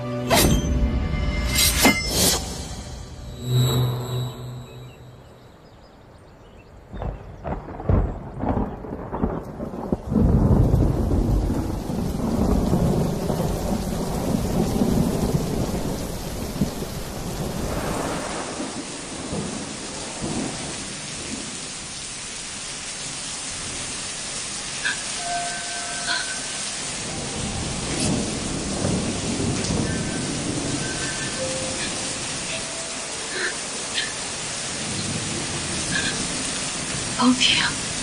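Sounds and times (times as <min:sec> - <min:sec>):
rolling thunder rumble: 0:06.8 - 0:21.7, 0:24.8 - 0:38.0
thunder cracks: 0:06.9 - 0:21.6, 0:24.8 - 0:32.6
heavy rain hiss: 0:07.0 - 0:38.0.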